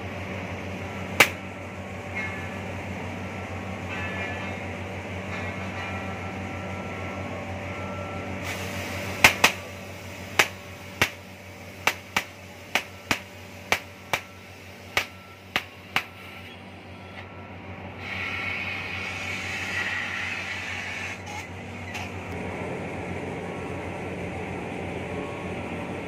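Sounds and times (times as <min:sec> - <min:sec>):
steady hum: 0:00.0 - 0:04.1, 0:06.2 - 0:18.0
cutting torch pops and snaps: 0:01.2 - 0:01.4, 0:09.2 - 0:09.6, 0:10.4 - 0:11.2
torch hiss: 0:08.4 - 0:14.2.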